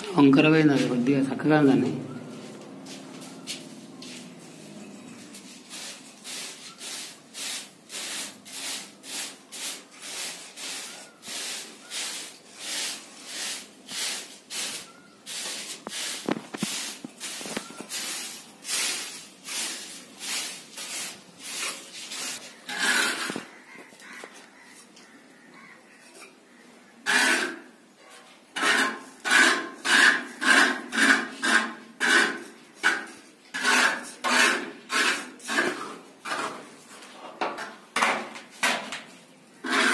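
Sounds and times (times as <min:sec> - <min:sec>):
plastering tool scraping plaster: 0:05.5 - 0:23.5, 0:27.0 - 0:27.7, 0:28.6 - 0:37.1, 0:39.6 - 0:39.9.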